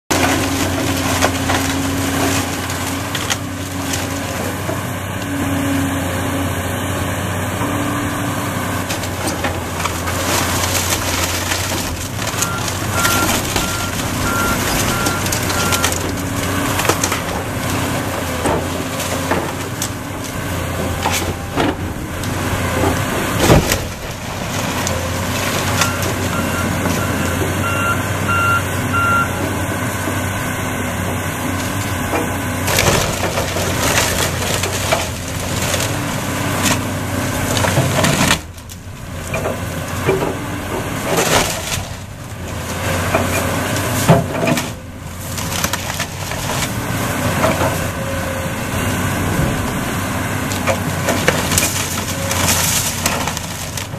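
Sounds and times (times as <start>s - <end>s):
falling debris: 0.1s - 4.9s, 8.6s - 27.8s, 31.4s - 48.1s, 49.0s - 53.9s
wood cracking and splintering: 0.1s - 5.6s, 7.7s - 29.2s, 30.0s - 53.9s
excavator diesel engine and hydraulics: 0.1s - 53.9s
back-up alarm beeping: 25.8s - 29.4s.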